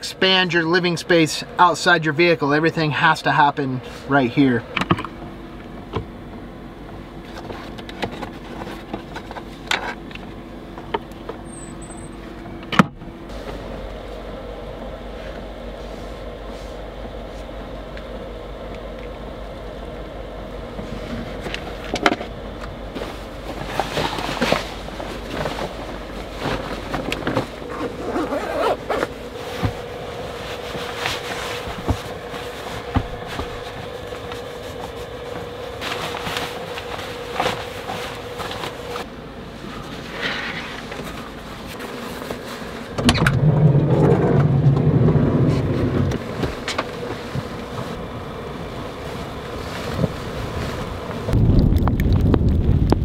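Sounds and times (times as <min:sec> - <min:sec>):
steady low hum: 0:00.0 - 0:53.0
gear and clothing rustling: 0:22.9 - 0:42.9, 0:48.7 - 0:51.4.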